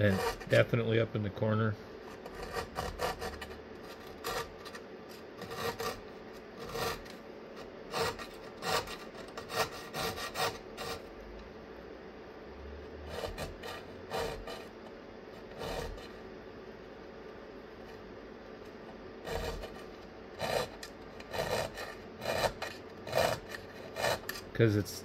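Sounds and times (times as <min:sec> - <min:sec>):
hand file rasping on metal: 0:00.0 - 0:00.7, 0:02.1 - 0:11.1, 0:13.0 - 0:16.2, 0:19.2 - 0:24.6.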